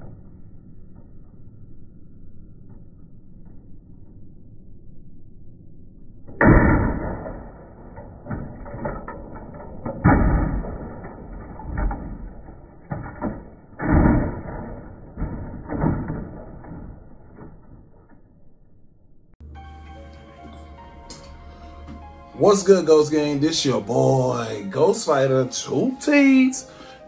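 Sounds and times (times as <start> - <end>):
plastic crashes and clatters: 6.9 - 18.3
printer smashing onto asphalt: 8.2 - 17.9.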